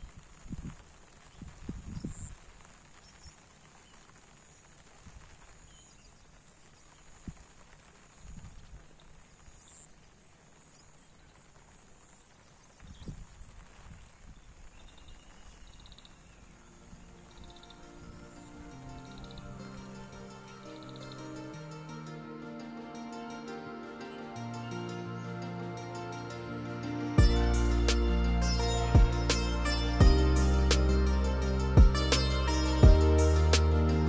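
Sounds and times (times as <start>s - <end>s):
faint steady hiss: 0.0s - 34.0s
wind thuds on microphone: 1.4s - 2.4s, 12.8s - 14.5s.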